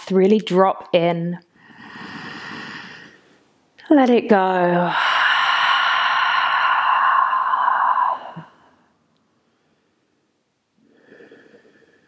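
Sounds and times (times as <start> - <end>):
woman sighing exhale: 4.9 - 8.8.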